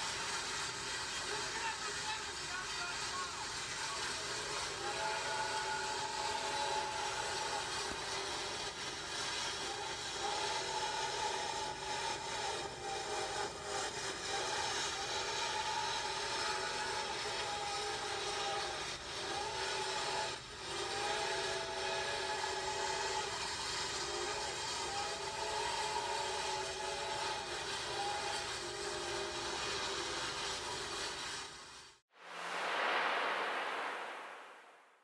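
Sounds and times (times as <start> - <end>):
train rushing on rails: 32.2 - 34.8.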